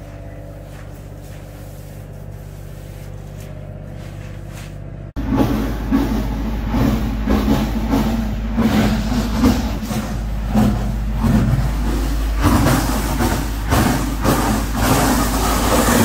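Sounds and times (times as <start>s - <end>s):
pumping machine hum: 0.0s - 16.0s
wet concrete pouring from hose: 10.6s - 16.0s.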